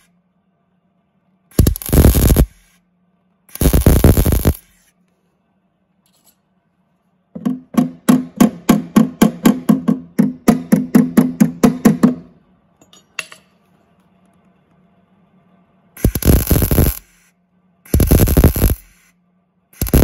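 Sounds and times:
welder arc crackle: 1.5s - 2.8s, 3.5s - 5.0s, 16.0s - 19.2s, 19.8s - 20.0s.

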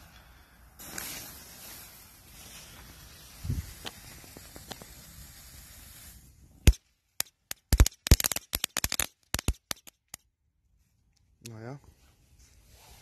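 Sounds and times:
fireworks hissing: 0.0s - 9.9s
fireworks crackling pops: 0.7s - 10.3s.

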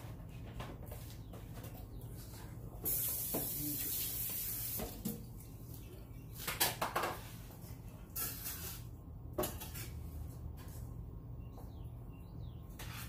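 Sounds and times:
kitchen tap running: 2.9s - 5.2s.

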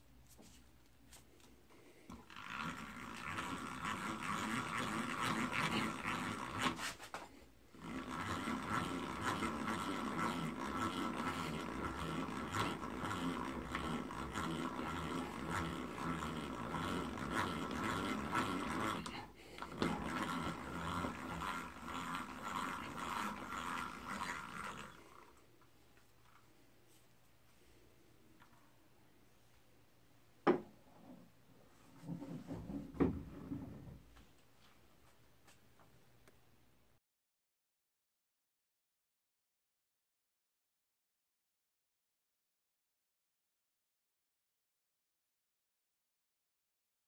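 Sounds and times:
hand drill gears whirring: 2.1s - 25.6s.

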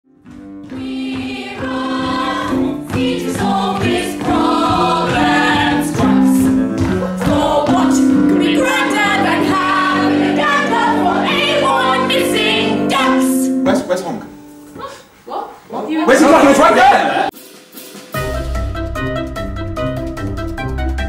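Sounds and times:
choir singing held notes: 0.7s - 13.8s.

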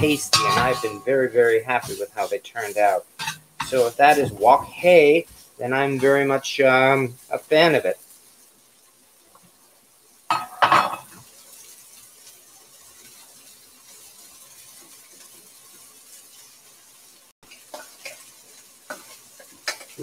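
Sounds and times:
utensil clinking against pan: 0.0s - 1.3s
beef sizzling in a wok: 0.0s - 20.0s.

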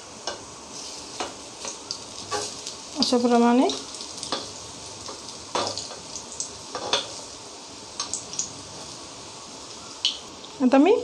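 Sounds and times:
batter sizzling in oil: 0.0s - 11.0s.

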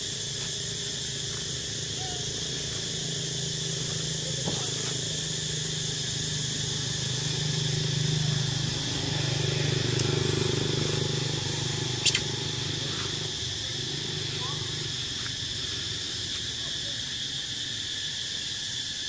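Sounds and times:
steady high buzz: 0.0s - 16.7s
short sharp chirp: 12.0s - 12.3s.

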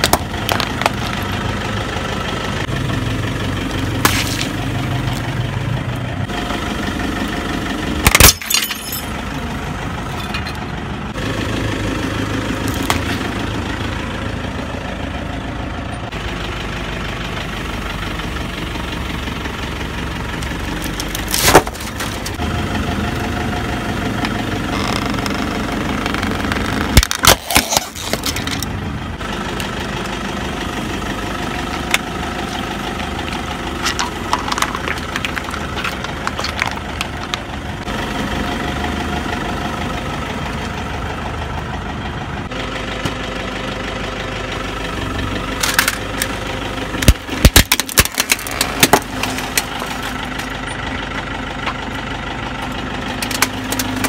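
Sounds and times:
tyre crushing objects: 0.0s - 1.2s, 4.0s - 5.2s, 21.2s - 22.4s, 26.8s - 28.6s, 47.0s - 50.5s
car engine idling: 0.0s - 54.0s.

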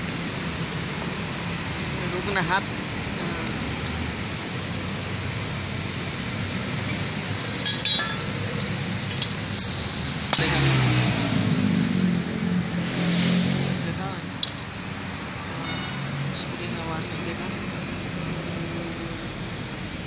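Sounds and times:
small metal parts clinking: 6.8s - 9.4s, 14.4s - 14.7s.

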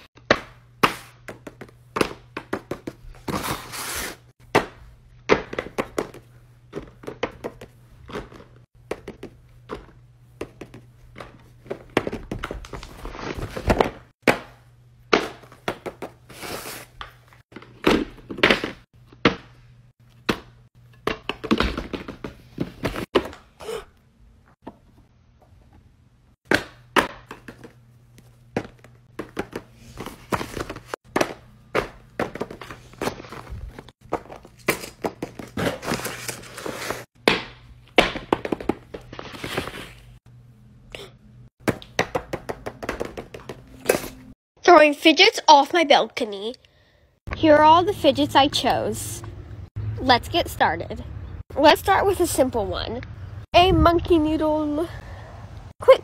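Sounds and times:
plastic toys thunking and clicking: 17.0s - 23.6s, 28.5s - 35.9s
paper rustling: 32.7s - 37.1s.

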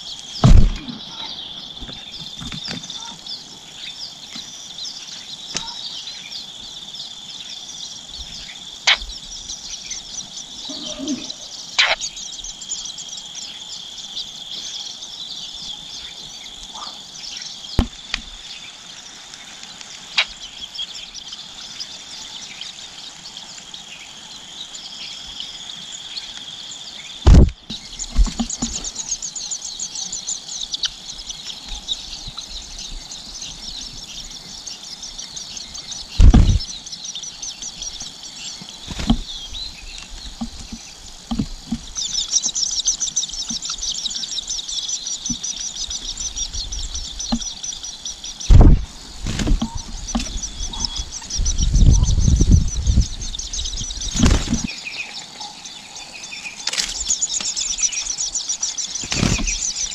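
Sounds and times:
loud low thumps: 0.4s - 1.0s, 27.3s - 27.6s, 36.2s - 36.7s.

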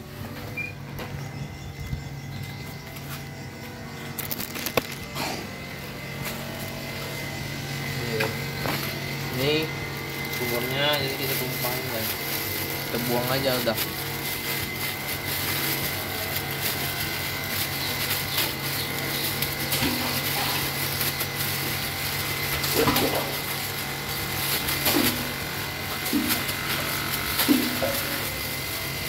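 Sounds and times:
plastic bag crackling: 4.1s - 29.0s
water pump motor hum: 4.2s - 29.0s.

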